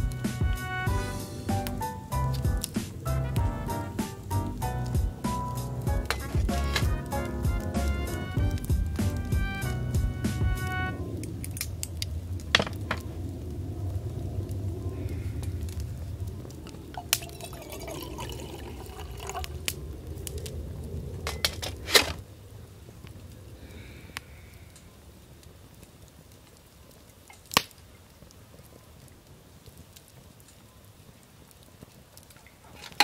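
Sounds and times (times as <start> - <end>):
liquid pouring: 16.9 - 19.8.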